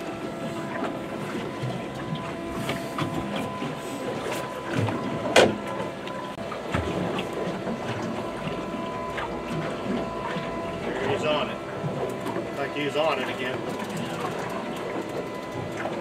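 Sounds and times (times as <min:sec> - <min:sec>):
water noise: 0:00.0 - 0:16.0
wind: 0:00.0 - 0:16.0
knocks on boat: 0:04.7 - 0:05.8.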